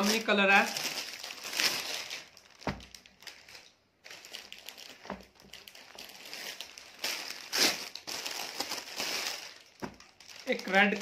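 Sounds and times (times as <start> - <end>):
fabric rustling and crinkling: 0.0 - 11.0
soft thumps: 2.6 - 3.0, 5.0 - 5.6, 9.8 - 10.0.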